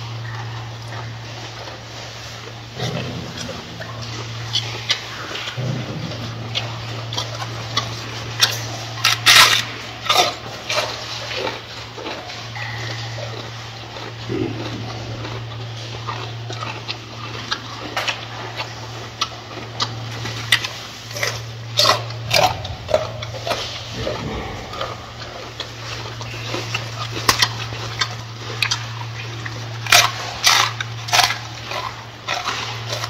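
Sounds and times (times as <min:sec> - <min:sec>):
gorilla chewing lettuce: 0:00.0 - 0:33.0
low hum: 0:19.2 - 0:33.0.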